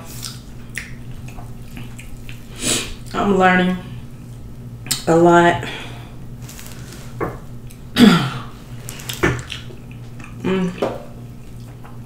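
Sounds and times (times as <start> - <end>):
person chewing wetly: 0.1 - 3.2, 8.7 - 12.0.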